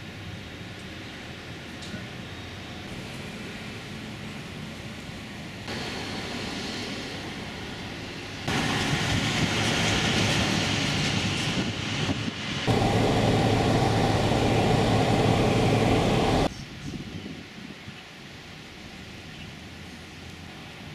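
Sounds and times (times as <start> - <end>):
outdoor traffic noise: 0.0 - 16.7, 18.0 - 20.9
road and engine noise inside car: 12.7 - 16.5.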